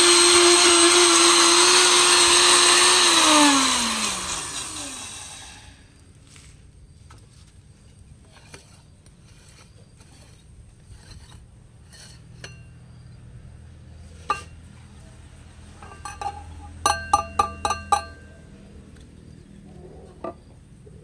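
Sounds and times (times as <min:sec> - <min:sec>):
metal lid clanking: 0:14.2 - 0:14.6, 0:15.8 - 0:18.2
lid clinking against steel bowl: 0:15.8 - 0:18.2.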